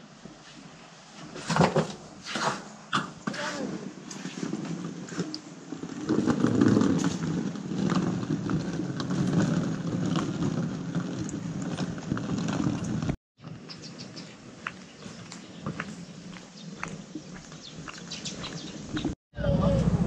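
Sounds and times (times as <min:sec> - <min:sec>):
suitcase rolling over concrete: 0:03.9 - 0:19.2.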